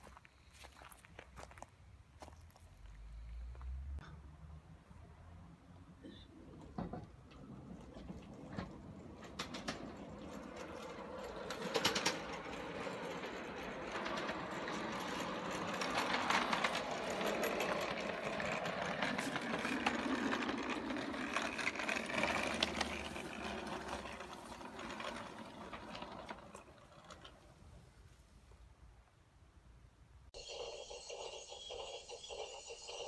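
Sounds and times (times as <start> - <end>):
miniature locomotive clattering: 6.0 - 28.2.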